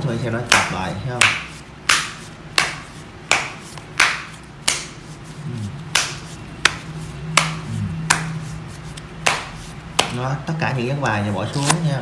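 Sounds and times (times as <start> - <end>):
playing cards slapping together: 0.5 - 5.0, 5.9 - 10.2.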